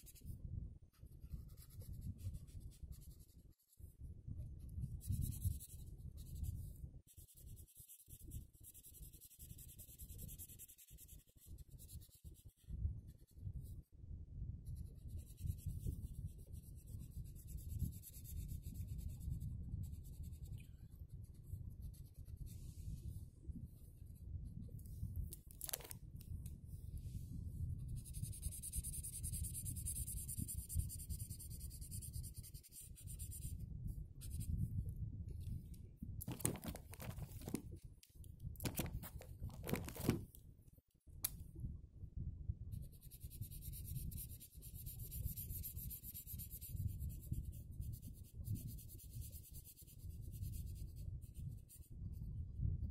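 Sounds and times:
marker scribbling on paper: 27.8 - 33.6.

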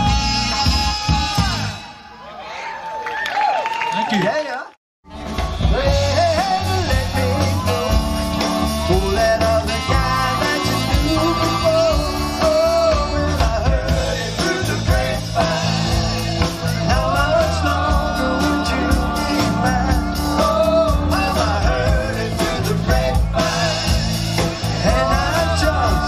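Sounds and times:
live band performing: 0.0 - 2.3, 5.1 - 26.0
drums: 0.0 - 2.6, 5.0 - 26.0
lead vocal singing: 5.5 - 26.0.

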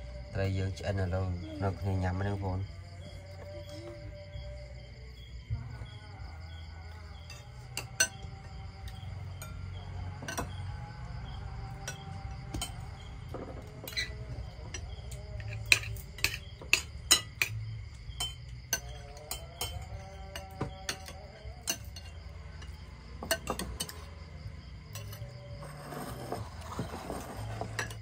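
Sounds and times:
metal utensils and dishes clinking: 7.3 - 9.6, 10.2 - 10.6, 11.8 - 17.6, 18.2 - 24.2, 24.9 - 28.0.

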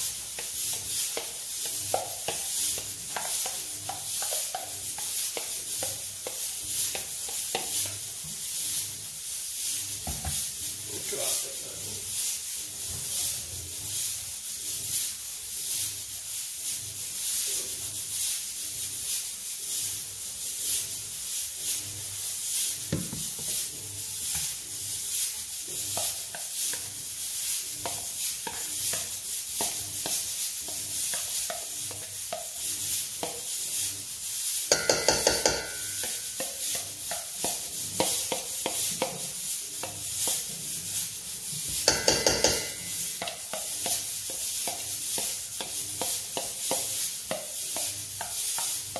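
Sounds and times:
ringing scrapes on metal bowl: 34.7 - 37.7, 41.8 - 43.6
spoon scraping metal bowl: 34.7 - 40.4, 41.6 - 48.7.

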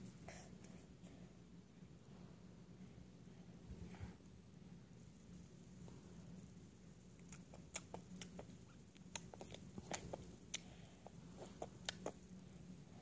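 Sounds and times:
wet mouth clicks and smacks: 7.2 - 10.7, 11.4 - 12.2
toddler chewing: 7.2 - 12.4.

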